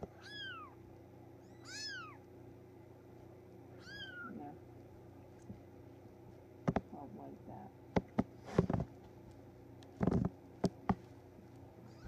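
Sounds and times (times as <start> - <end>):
kitten mewing: 0.2 - 0.8, 1.4 - 2.2, 3.8 - 4.6.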